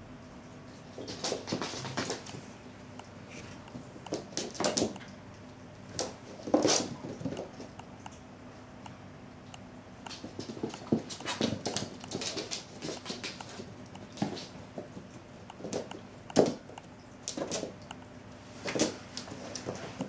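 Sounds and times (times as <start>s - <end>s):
cat paws scrabbling on wooden floor: 10.1s - 16.7s.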